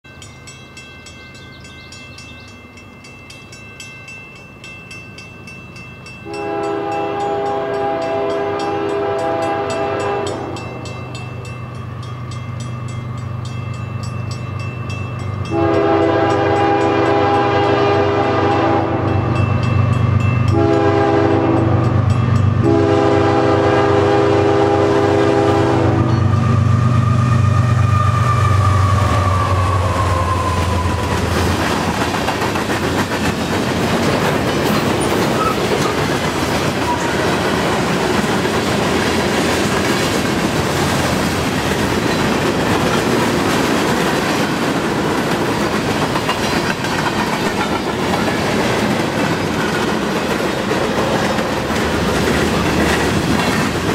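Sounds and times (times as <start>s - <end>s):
crossing bell ringing: 0.0s - 26.5s
locomotive engines rumbling: 5.5s - 53.9s
locomotive horn blasts: 6.2s - 10.8s, 15.4s - 19.3s, 20.5s - 31.2s.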